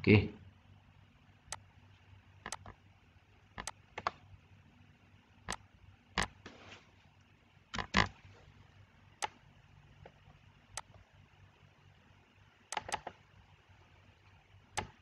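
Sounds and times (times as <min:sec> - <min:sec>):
faint low hum: 0:00.0 - 0:15.0
computer mouse clicking: 0:02.4 - 0:02.8, 0:03.5 - 0:04.3, 0:05.4 - 0:06.4, 0:07.7 - 0:08.2, 0:09.1 - 0:11.1, 0:12.7 - 0:13.3, 0:14.7 - 0:15.0.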